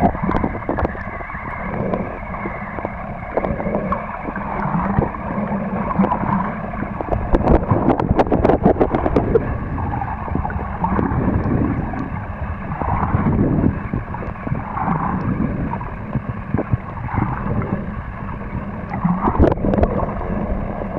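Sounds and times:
crackling clicks: 0.0s - 9.5s, 13.9s - 20.2s
underwater water churning: 0.0s - 20.9s.

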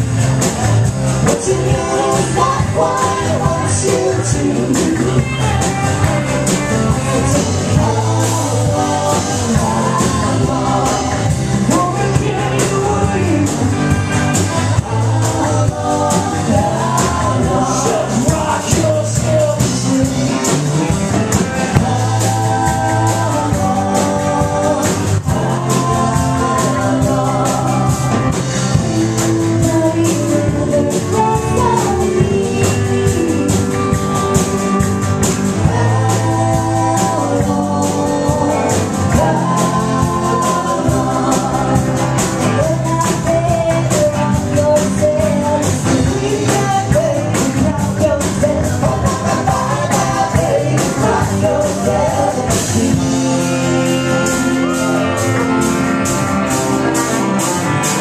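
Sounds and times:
acoustic guitar: 0.0s - 58.0s
electric guitar: 0.0s - 58.0s
person singing: 1.2s - 58.0s.

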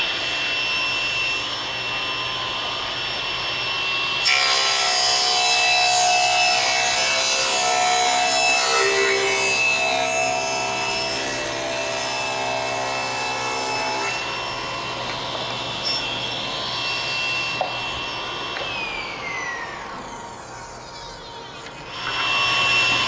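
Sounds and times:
table saw cutting wood: 0.0s - 23.0s
saw blade spinning free whine: 12.3s - 23.0s.

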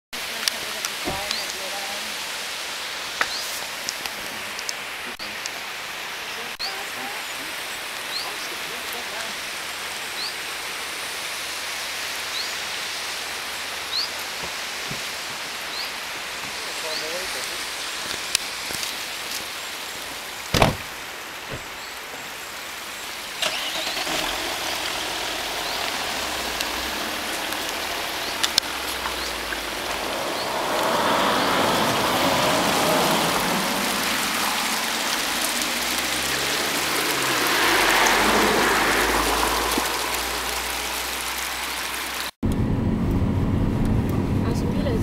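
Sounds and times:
road vehicles passing: 20.4s - 45.0s
sharp knocks: 20.5s - 20.9s.

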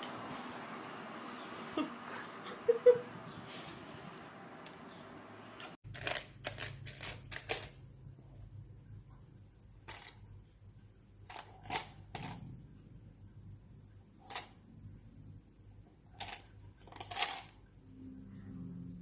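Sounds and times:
low hum: 12.2s - 19.0s.

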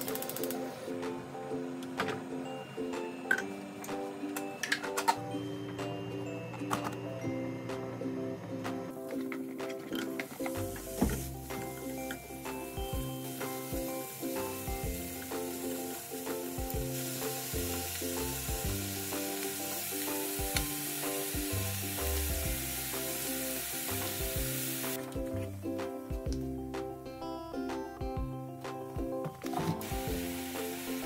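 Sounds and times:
light background music: 0.0s - 31.0s
food sizzling in a frying pan: 11.2s - 25.0s, 29.8s - 31.0s.

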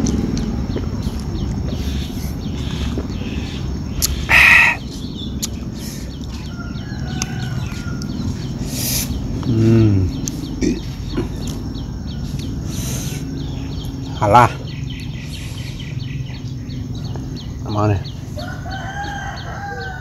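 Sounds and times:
chickens clucking: 0.0s - 14.0s
low outdoor hum: 0.0s - 20.0s
small birds chirping: 0.0s - 20.0s.

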